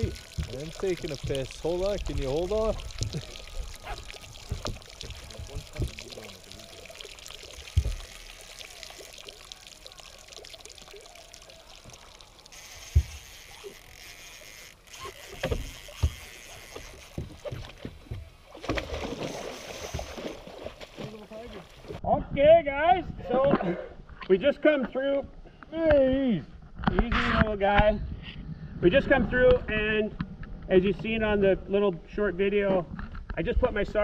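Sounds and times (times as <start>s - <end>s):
water sloshing: 0.0s - 22.0s
fish splashing in net: 18.5s - 22.0s.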